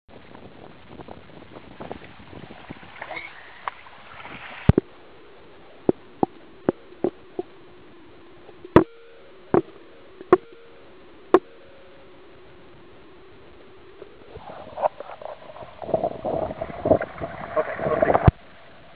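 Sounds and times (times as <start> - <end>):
water sloshing and splashing: 1.8 - 4.8.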